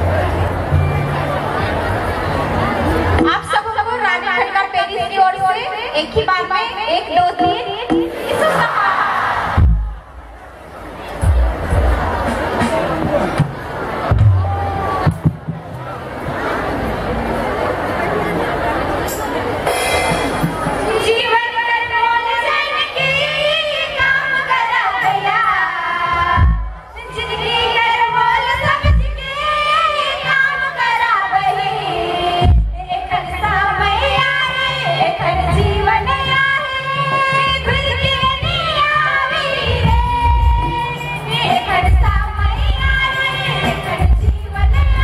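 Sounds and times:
low steady drum beat: 9.6 - 10.4, 11.2 - 15.7, 26.4 - 26.9.

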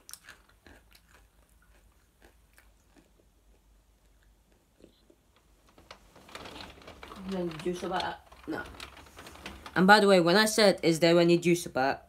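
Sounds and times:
chips crunching while chewed: 0.0 - 5.2.

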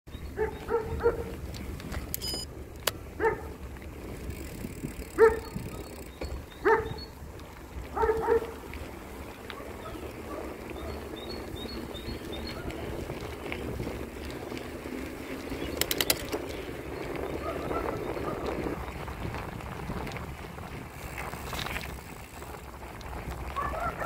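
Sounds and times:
bicycle tyres rolling: 0.1 - 24.0
wind rumble: 0.1 - 24.0
dog barking: 0.4 - 1.4, 3.2 - 3.6, 5.2 - 5.8, 6.6 - 7.0, 7.9 - 8.6, 9.5 - 11.1, 17.4 - 18.5, 23.6 - 24.0.

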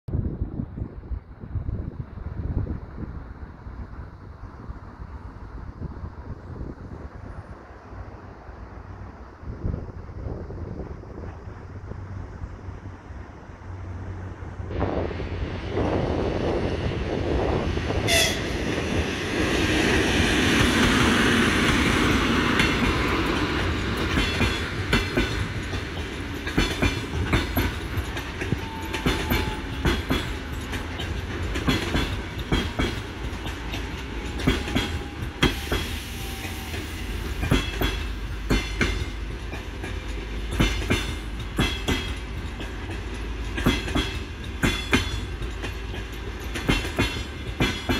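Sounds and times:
electric locomotive passing: 0.3 - 47.9
train wheels clicking over rail joints: 17.2 - 47.9.

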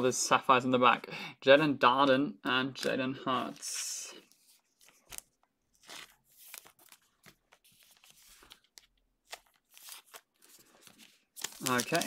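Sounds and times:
cards rustling and clicking: 2.8 - 12.0.

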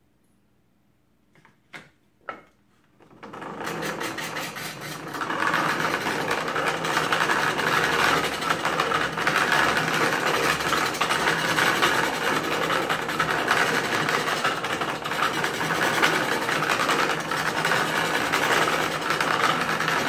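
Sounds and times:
wooden gears whirring: 3.1 - 20.0
grinding wheel against blade: 3.2 - 20.0.

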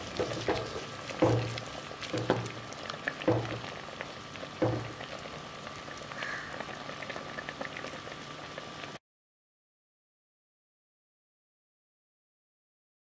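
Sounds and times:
wooden spoon knocking on pot: 0.0 - 3.8, 4.6 - 5.0
curry simmering and bubbling: 0.0 - 9.0.

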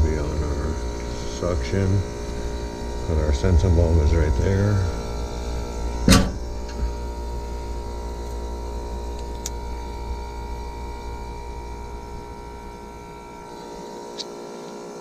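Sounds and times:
heat pump compressor hum: 0.0 - 15.0.

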